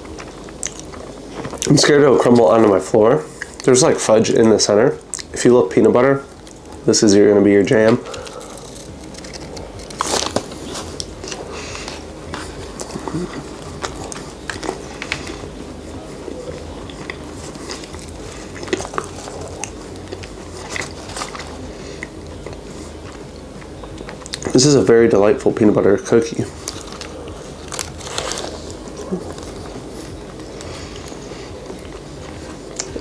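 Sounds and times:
chewing with mouth clicks: 0.0s - 1.8s, 5.0s - 5.4s, 8.1s - 24.6s, 26.5s - 33.0s.

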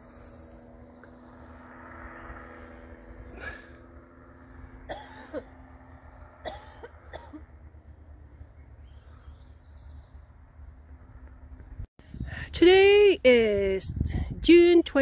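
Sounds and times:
paramotor engine drone: 0.0s - 12.4s
wind on microphone: 11.7s - 12.6s, 13.4s - 14.9s.

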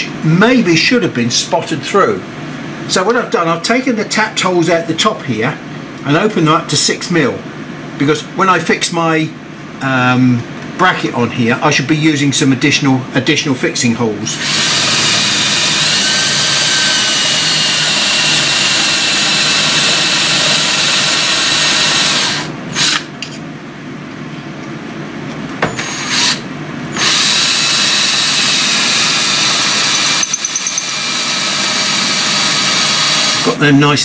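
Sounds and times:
cordless drill drilling plastic: 14.4s - 23.1s, 25.8s - 26.4s, 27.0s - 33.6s.

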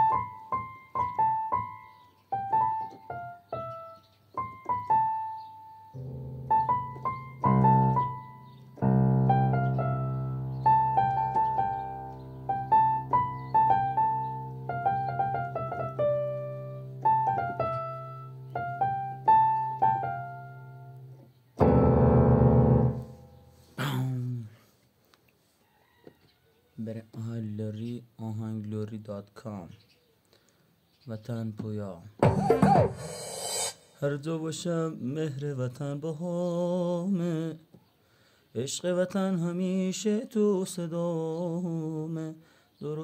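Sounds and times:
electronic keyboard melody: 0.0s - 23.8s, 32.2s - 33.9s.

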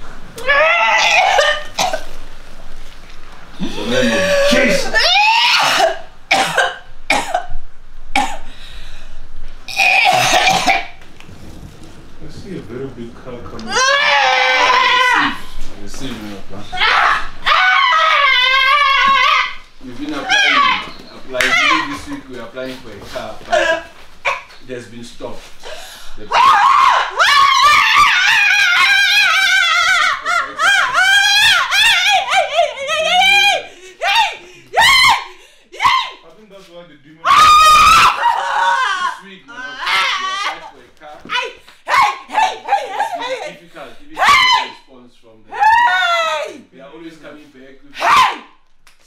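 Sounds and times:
woman coughing: 1.3s - 2.1s, 5.6s - 7.5s, 8.2s - 8.5s, 9.8s - 10.9s
woman screaming and wailing: 3.6s - 6.0s, 13.7s - 15.4s, 16.7s - 19.6s, 26.3s - 36.2s, 37.3s - 40.6s, 41.3s - 43.6s, 45.5s - 46.6s.

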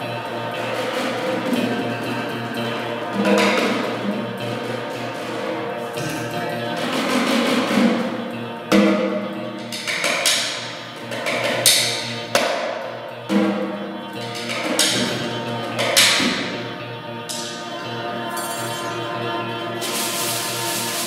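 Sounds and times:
ambient electric guitar drone: 0.0s - 21.0s.

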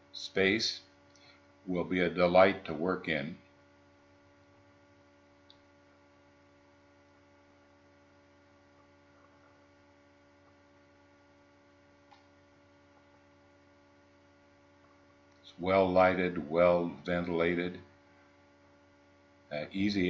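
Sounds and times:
faint electrical hum: 0.0s - 20.0s
small clicks: 12.0s - 12.3s.

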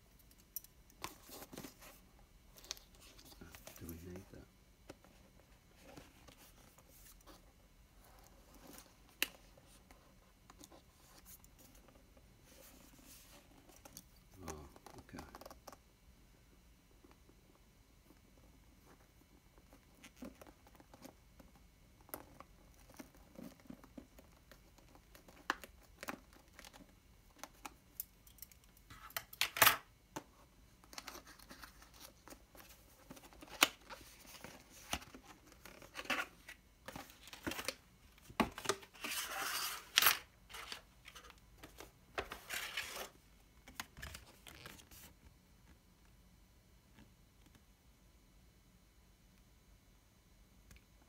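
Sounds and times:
cardboard rustling: 30.9s - 45.1s.

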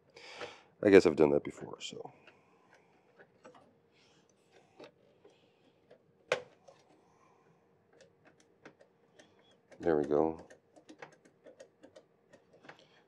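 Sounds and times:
screwdriver ticks and clicks: 8.0s - 12.8s.

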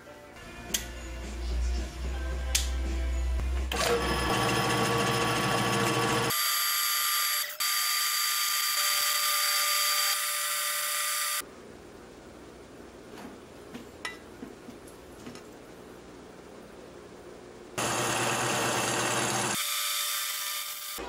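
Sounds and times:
drill press whining: 3.7s - 6.7s, 17.8s - 21.0s.

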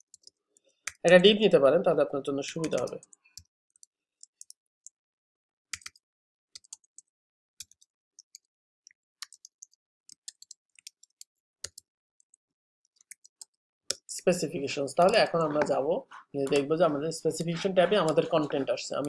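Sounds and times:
typing on computer keyboard: 0.0s - 1.2s, 2.4s - 4.6s.

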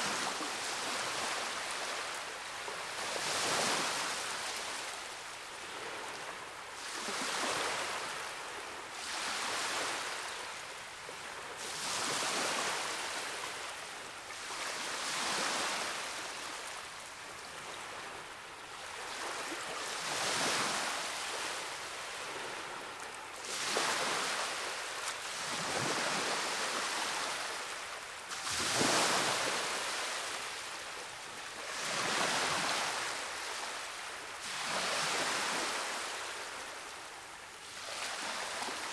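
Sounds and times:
ocean waves breaking: 17.6s - 36.7s, 37.6s - 38.9s.

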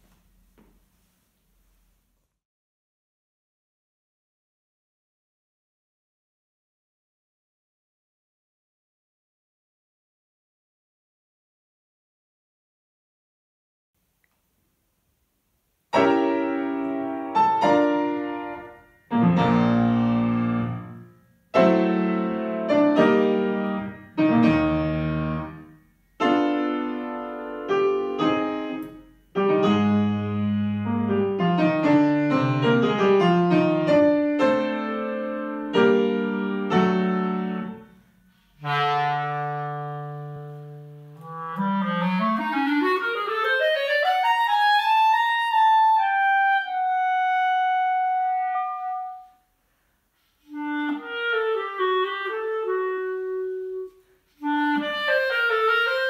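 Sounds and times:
grand piano chords: 15.9s - 38.1s
clarinet rising line: 38.6s - 49.4s, 50.5s - 56.0s.

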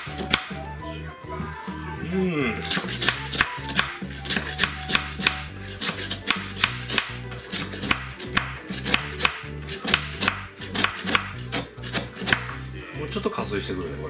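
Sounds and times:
knife scraping bark off log: 2.6s - 12.6s.

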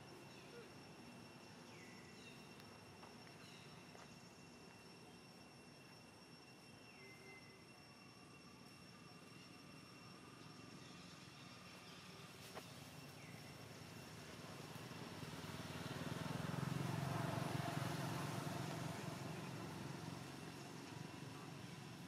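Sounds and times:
vehicle passing by: 14.1s - 21.7s.

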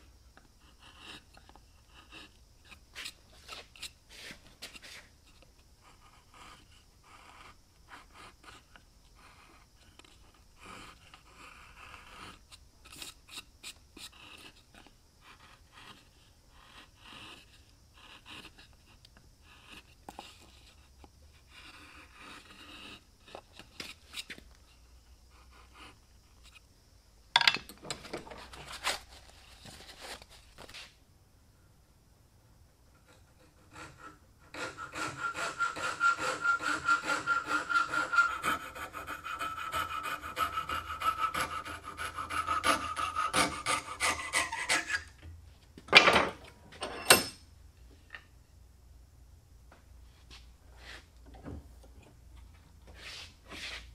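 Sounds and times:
chisel scraping wood: 0.6s - 5.4s, 6.1s - 24.8s, 33.0s - 45.2s, 52.9s - 53.9s.

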